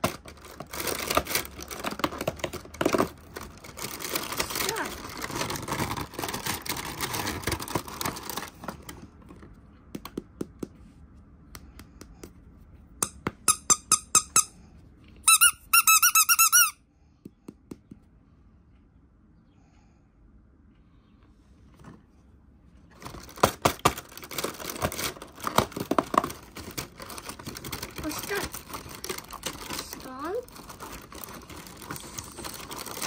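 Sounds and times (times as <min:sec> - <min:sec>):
packaging rustling: 0:00.0 - 0:09.5, 0:22.9 - 0:33.0
squeaky toy squeaking: 0:13.4 - 0:14.6, 0:15.2 - 0:16.8.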